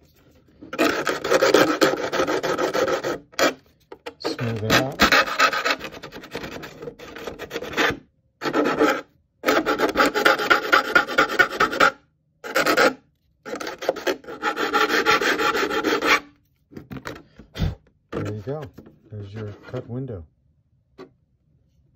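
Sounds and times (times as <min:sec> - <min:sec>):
file rasping on plastic: 0:00.6 - 0:16.3.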